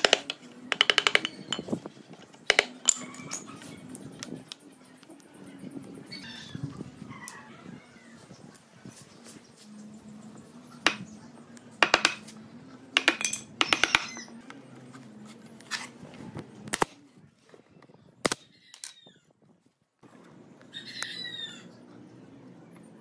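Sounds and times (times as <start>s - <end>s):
knocks and clicks on wood: 0.0s - 1.6s, 11.8s - 12.2s, 13.0s - 14.2s.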